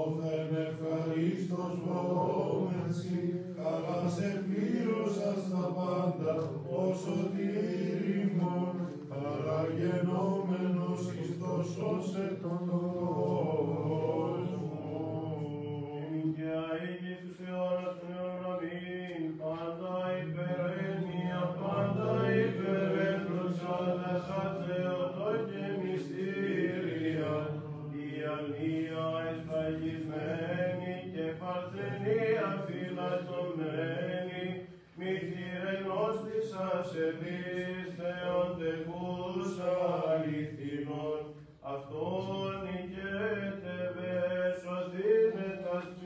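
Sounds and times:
voices chanting slow melody: 0.0s - 46.0s.

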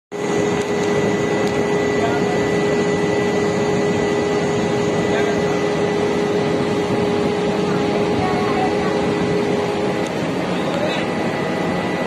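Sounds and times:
ship machinery hum and rushing: 0.1s - 12.0s.

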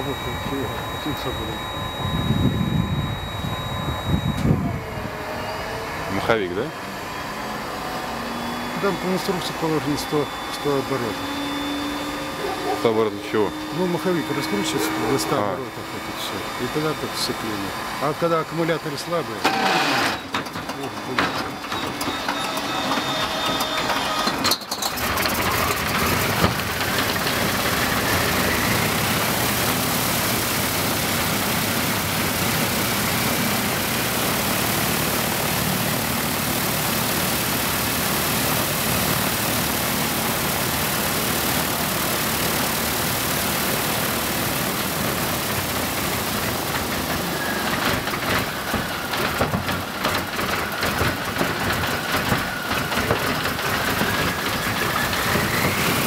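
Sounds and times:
radial engine starting with a bang: 0.0s - 5.0s, 8.7s - 34.2s
inertia starter whine: 0.0s - 56.0s
radial engine running: 0.0s - 56.0s.

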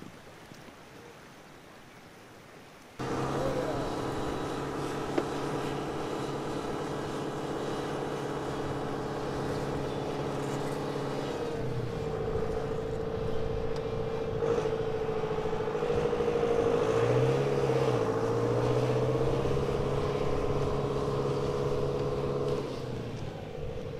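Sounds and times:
tractor engine under load: 3.0s - 16.6s.

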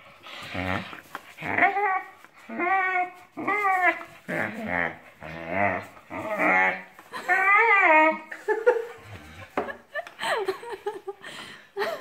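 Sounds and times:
dog whining and howling: 0.5s - 8.3s.

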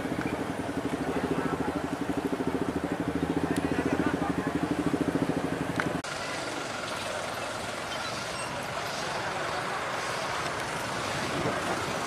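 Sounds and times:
crowd noise: 0.0s - 12.0s
tow truck engine running: 0.0s - 12.0s
traffic noise: 0.0s - 12.0s.

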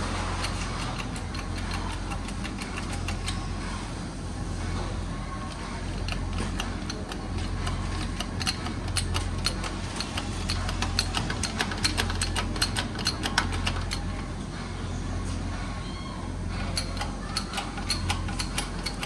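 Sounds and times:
steady low hum: 0.0s - 19.0s
metallic ticks and clicks: 0.3s - 3.6s, 5.5s - 14.2s, 16.6s - 19.0s.

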